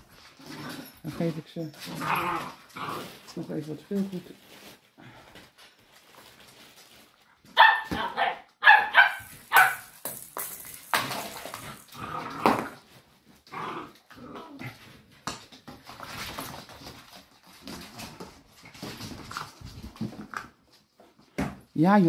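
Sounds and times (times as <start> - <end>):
paws scuffling on floor: 0.0 - 8.2
puppies growling and yipping: 1.9 - 3.2.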